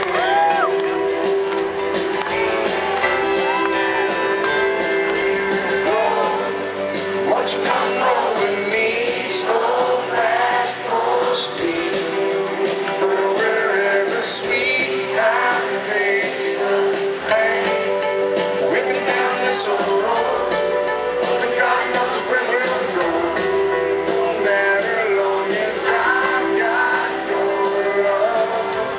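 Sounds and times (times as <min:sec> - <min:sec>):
live country band playing: 0:00.0 - 0:28.9
man singing lead vocal: 0:05.8 - 0:28.9.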